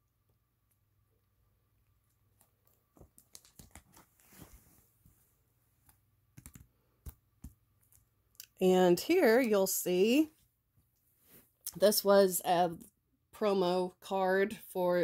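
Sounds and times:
page being turned: 3.0s - 4.8s.

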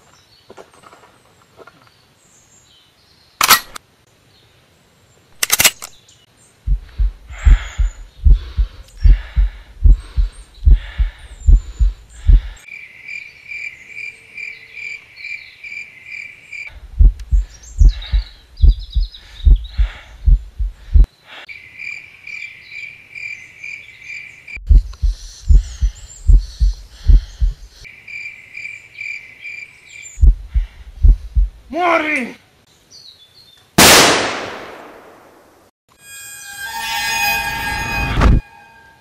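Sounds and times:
faint bird chirps: 6.5s - 16.7s, 17.3s - 20.6s, 21.5s - 30.5s
heartbeat thumps: 6.7s - 12.6s, 16.7s - 21.1s, 24.6s - 27.8s, 30.2s - 31.7s
loud sharp cracks: 33.8s - 35.5s.

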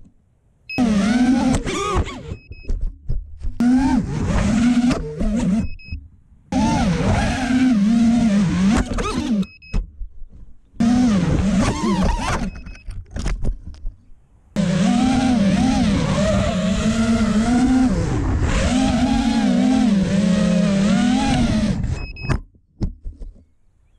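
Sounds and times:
drone motors whining: 0.7s - 2.8s, 3.6s - 9.8s, 10.8s - 12.8s, 14.6s - 22.3s.

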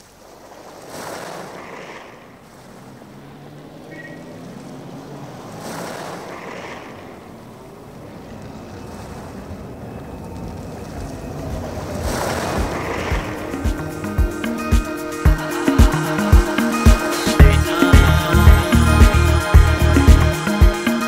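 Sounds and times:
rushing wave-like noise: 0.0s - 21.0s
low steady drone: 6.3s - 21.0s.

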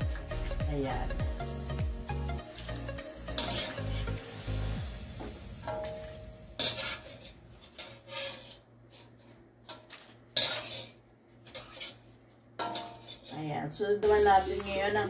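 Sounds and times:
wire skimmer scraping against wok: 2.4s - 4.8s, 5.6s - 15.0s.

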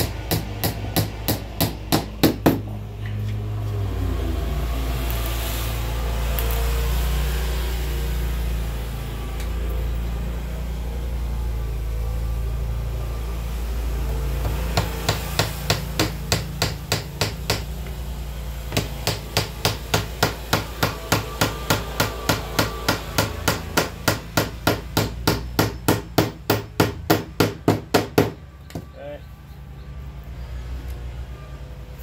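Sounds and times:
low hum: 2.6s - 16.0s.

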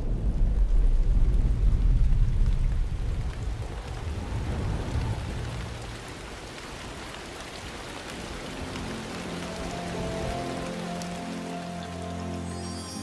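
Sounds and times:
deep thunder rumble: 0.0s - 6.6s
rain hissing: 0.0s - 13.0s.

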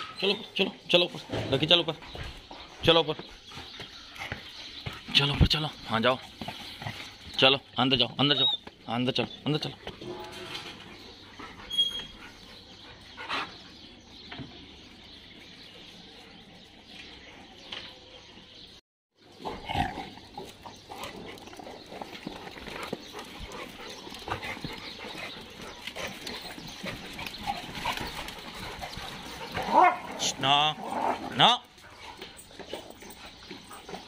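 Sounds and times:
dogs vocalizing: 19.4s - 34.0s.

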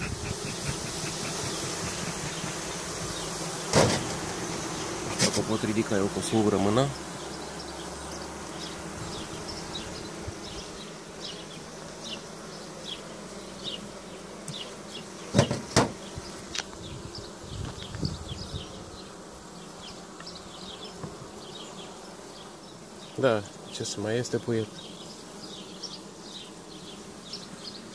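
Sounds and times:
honeybees buzzing: 0.0s - 27.9s
hive tool knocking on wood: 0.1s - 2.7s, 3.7s - 4.4s, 15.3s - 16.0s, 21.0s - 21.3s.

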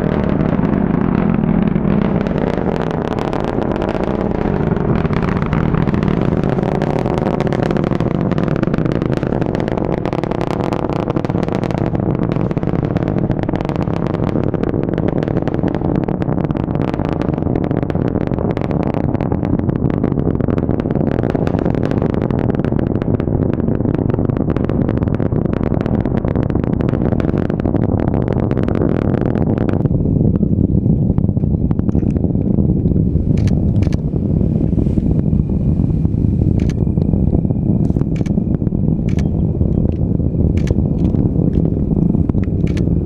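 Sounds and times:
rocket engines rumbling and crackling: 0.0s - 43.0s
sharp clicks: 33.4s - 34.0s, 36.6s - 36.8s, 37.8s - 38.4s, 39.1s - 40.0s, 40.6s - 41.7s, 42.4s - 42.9s.

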